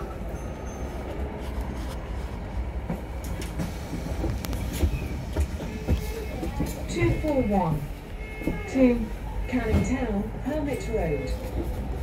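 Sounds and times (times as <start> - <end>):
bus engine rumble: 0.0 - 12.0
bus fittings rattling and knocking: 2.8 - 9.0.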